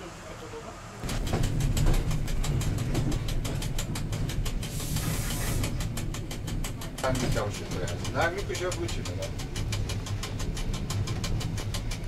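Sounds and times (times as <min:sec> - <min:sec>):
train rumble: 0:00.0 - 0:12.0
wheels clicking over rail joints: 0:01.0 - 0:12.0
short hiss: 0:04.7 - 0:05.7.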